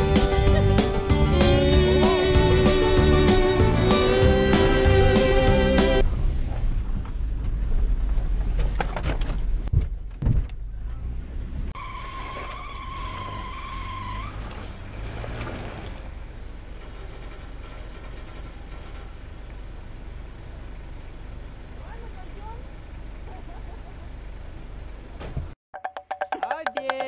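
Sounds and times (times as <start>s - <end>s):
high-pitched tone: 0.0s - 6.0s
vehicle engine and road rumble: 0.0s - 25.6s
vehicle engine outdoors: 0.0s - 26.8s.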